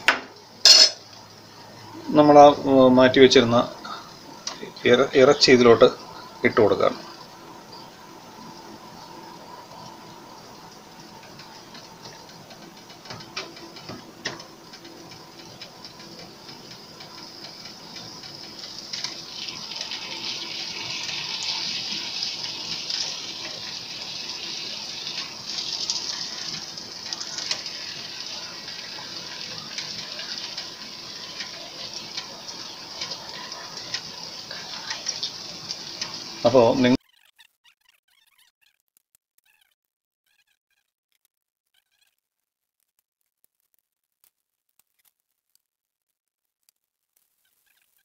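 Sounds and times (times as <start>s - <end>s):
meat sizzling in a pan: 0.0s - 37.0s.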